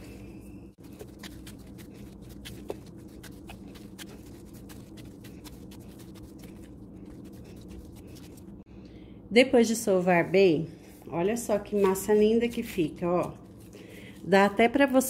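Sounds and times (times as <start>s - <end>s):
dough squishing in cling film: 0.0s - 8.6s
steady low hum: 0.0s - 15.0s.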